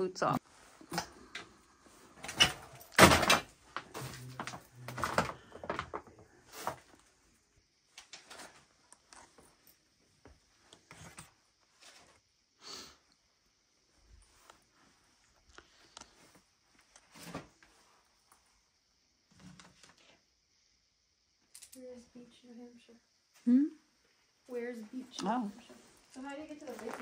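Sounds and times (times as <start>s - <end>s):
knocks and clattering: 2.2s - 6.2s.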